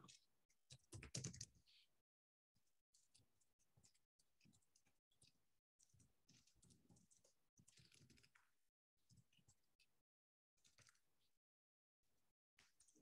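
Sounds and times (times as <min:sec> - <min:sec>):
keyboard typing and clicking: 0:00.1 - 0:01.6.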